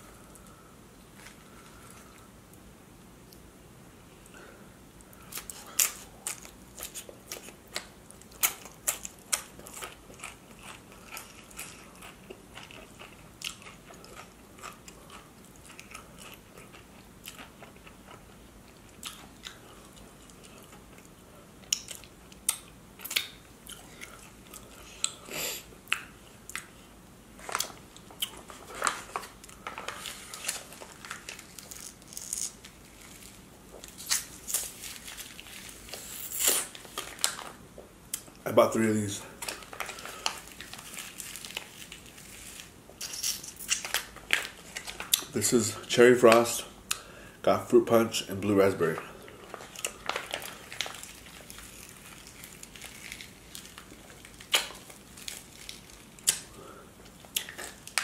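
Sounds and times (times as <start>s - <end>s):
soft chewing: 4.1s - 38.4s, 39.2s - 47.2s, 48.9s - 58.0s
crunching chips: 27.4s - 37.6s, 39.4s - 47.0s, 48.8s - 58.0s.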